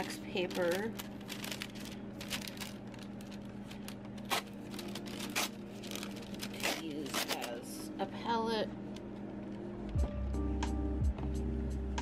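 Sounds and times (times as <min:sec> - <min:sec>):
wax paper crinkling: 0:00.0 - 0:07.8.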